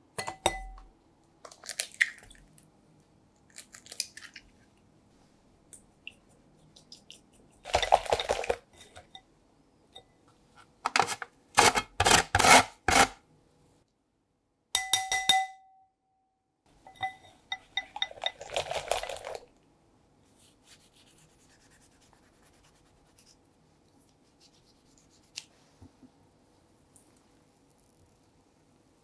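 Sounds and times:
glass bowl ringing: 0.2s - 0.8s, 14.8s - 15.9s, 16.9s - 18.2s
whisk clinking in glass bowl: 16.9s - 19.4s.

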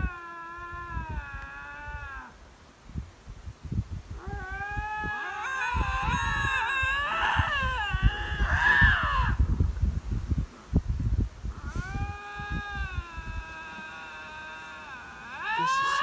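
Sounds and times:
lynx yowling: 0.0s - 2.4s, 4.2s - 9.4s, 11.5s - 16.0s.

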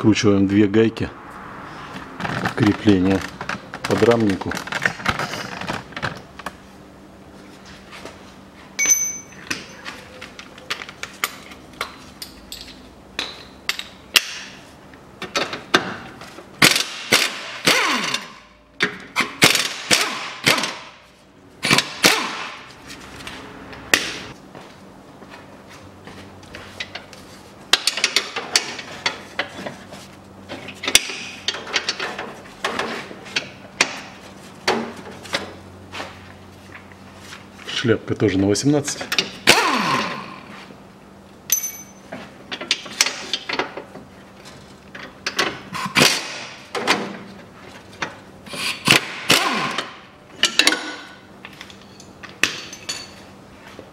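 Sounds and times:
metallic tool clinks: 8.8s - 9.5s, 41.5s - 42.0s.

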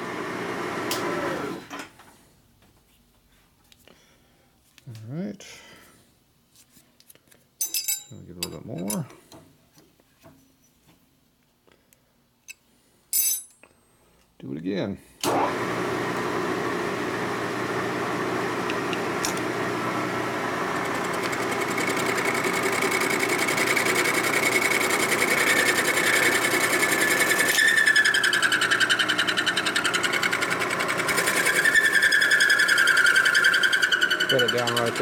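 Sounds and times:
milling machine cutting metal: 20.4s - 35.0s.

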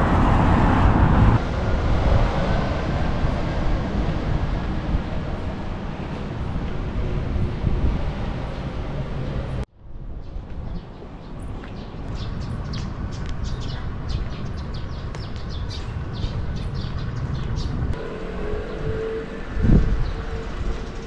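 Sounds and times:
passing vehicle hum: 0.0s - 9.6s, 15.8s - 21.0s
low street rumble: 0.0s - 21.0s.

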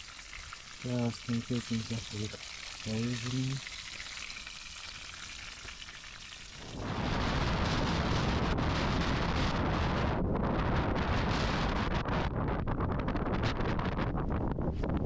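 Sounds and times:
food sizzling in a frying pan: 0.0s - 7.1s
wind buffeting microphone: 6.4s - 15.0s.

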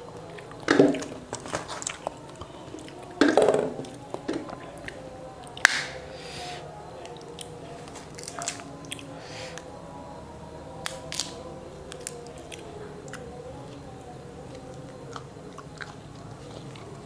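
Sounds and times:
fruit rind cracking: 0.6s - 6.0s, 7.0s - 9.1s, 10.8s - 13.2s.

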